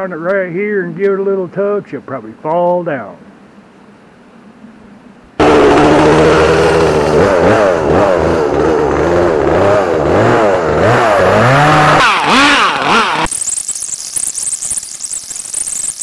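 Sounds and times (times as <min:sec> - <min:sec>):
chainsaw revving: 0:05.4 - 0:14.1.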